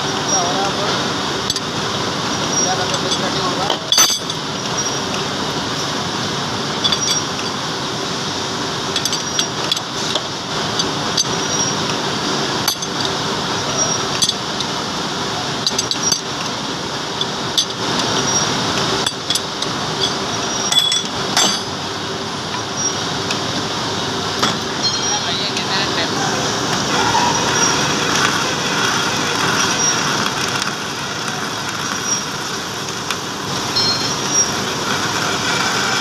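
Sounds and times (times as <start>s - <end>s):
metal lathe running: 0.0s - 36.0s
metal chips clinking: 2.9s - 4.4s, 15.6s - 16.4s, 17.2s - 21.7s.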